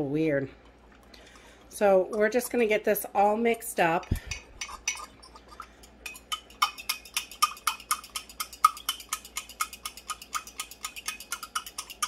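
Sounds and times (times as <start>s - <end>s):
fork whisking in glass cup: 0.6s - 12.0s.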